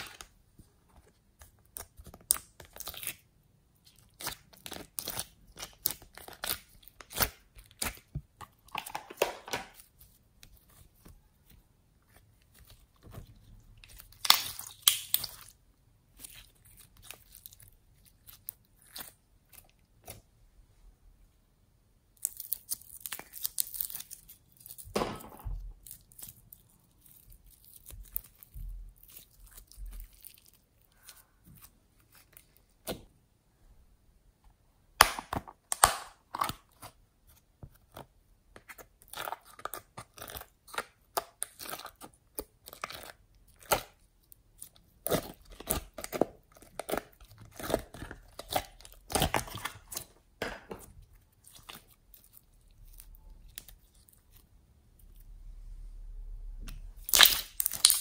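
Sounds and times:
slime sticky clicks and pops: 14.2s - 15.4s, 57.0s - 58.0s.

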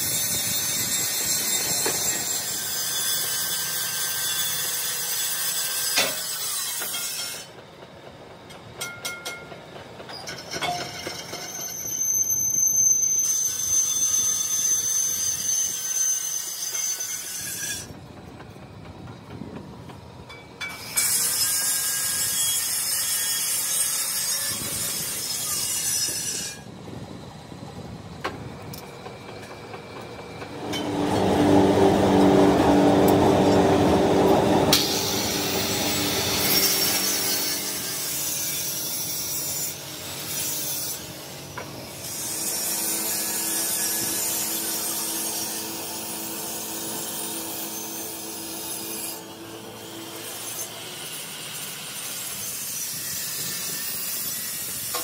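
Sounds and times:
angle grinder grinding steel: 30.6s - 55.0s.

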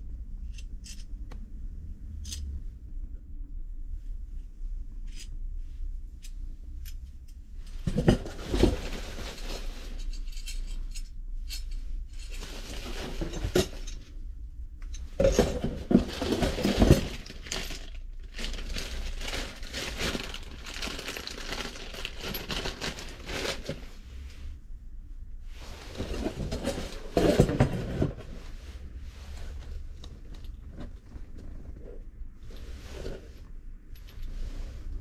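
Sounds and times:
metal tubes clinking: 9.2s - 14.1s
bubble wrap crinkling: 16.1s - 23.8s.

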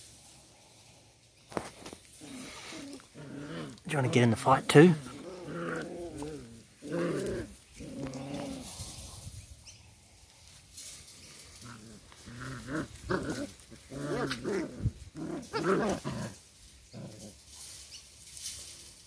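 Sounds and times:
puppies growling and yipping: 2.2s - 4.3s, 4.9s - 8.9s, 11.3s - 17.5s.

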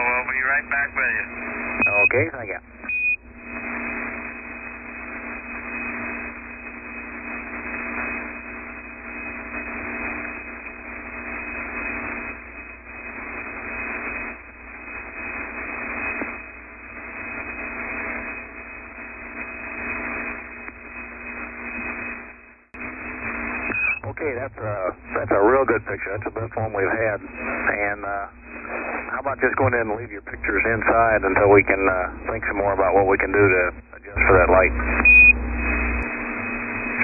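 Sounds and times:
radio hiss and static: 0.0s - 37.0s
steady hum: 0.0s - 37.0s
signal dropout click: 15.4s - 16.4s, 22.8s - 37.0s.

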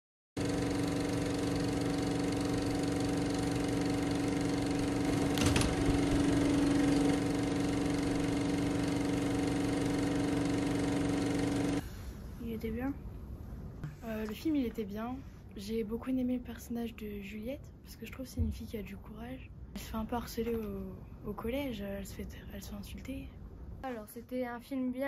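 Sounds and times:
film projector whirring: 0.4s - 11.8s
constant hum: 4.4s - 25.0s.

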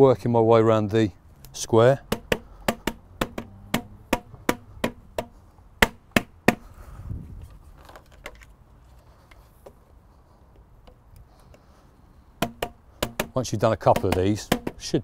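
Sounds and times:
mallet tapping plastic panels: 2.0s - 6.6s, 12.4s - 15.0s.

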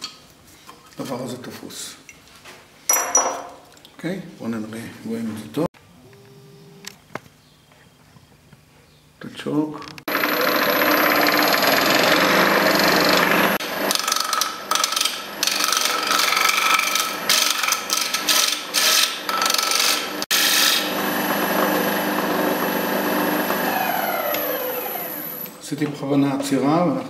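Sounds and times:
lathe motor running: 10.1s - 25.6s
gouge scraping wood: 13.5s - 20.9s.

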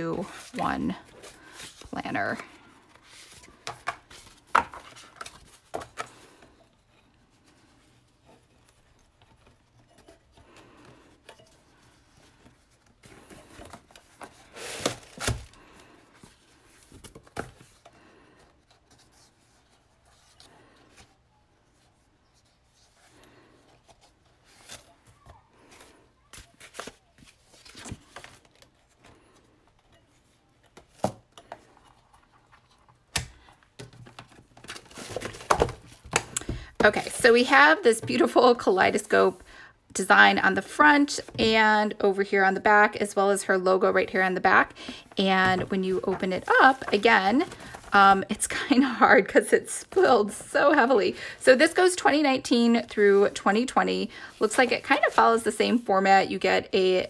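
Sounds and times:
paper pages rustling: 0.0s - 39.1s, 44.6s - 48.2s.

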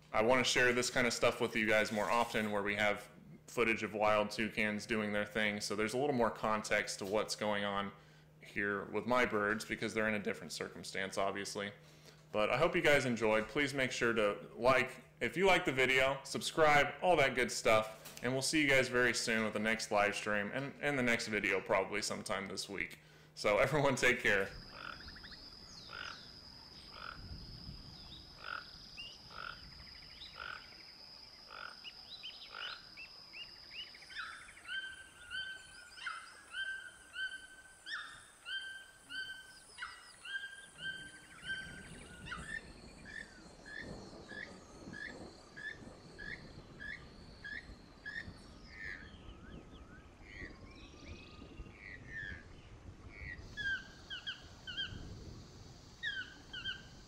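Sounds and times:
steady high whine: 0.0s - 57.0s
toucan calls: 24.2s - 30.9s, 31.5s - 49.2s, 53.2s - 55.0s, 56.0s - 57.0s.

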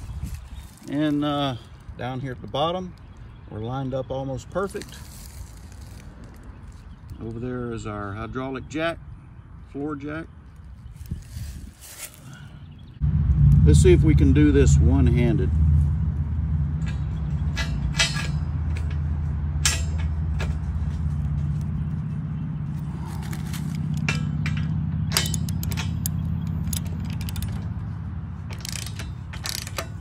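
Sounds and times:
steady low hum: 11.1s - 30.0s
metal clinks: 16.8s - 20.9s, 23.7s - 27.8s, 28.4s - 30.0s
ratchet wrench clicking: 23.9s - 27.8s, 28.5s - 30.0s.

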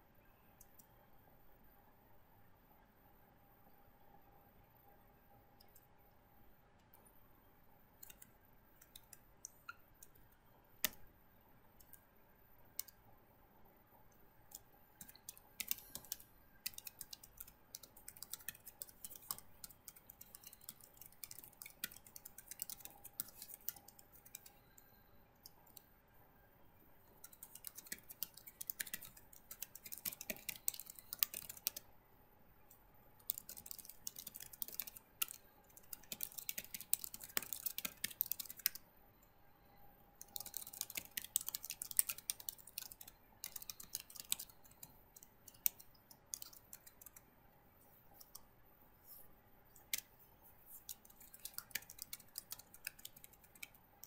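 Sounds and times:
computer keyboard typing: 8.0s - 11.1s, 12.7s - 13.0s, 14.4s - 25.9s, 27.0s - 31.9s, 33.2s - 38.8s, 40.2s - 47.3s, 48.2s - 54.0s.

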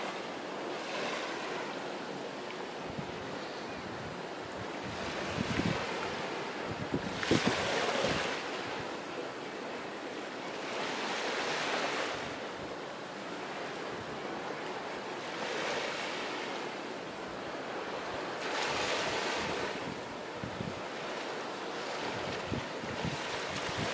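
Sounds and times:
waves breaking on sandy beach: 0.0s - 23.9s
wind buffeting microphone: 2.9s - 8.4s, 18.6s - 20.9s, 22.0s - 23.9s.

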